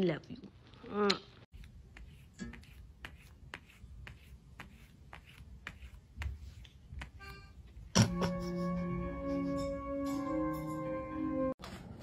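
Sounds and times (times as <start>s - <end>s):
music playing: 8.0s - 11.6s.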